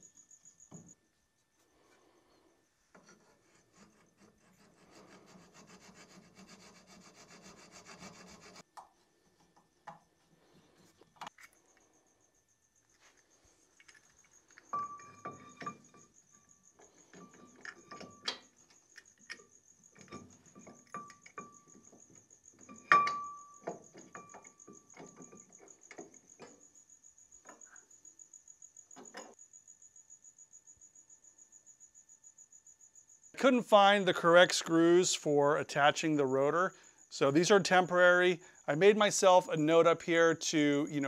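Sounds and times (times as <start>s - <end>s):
faint cricket trill: 0.0s - 41.0s
metal clicks and knocks: 16.8s - 26.6s.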